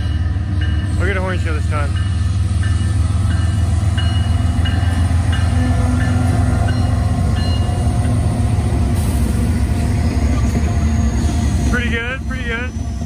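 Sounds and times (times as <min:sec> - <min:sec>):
crossing bell dinging: 0:00.0 - 0:08.6
freight train rumbling: 0:00.0 - 0:13.0.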